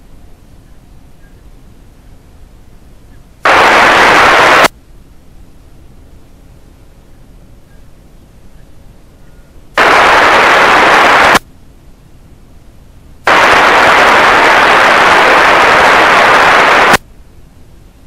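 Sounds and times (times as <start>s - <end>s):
radio static hiss bursts: 3.4s - 4.7s, 9.8s - 11.5s, 13.2s - 17.0s.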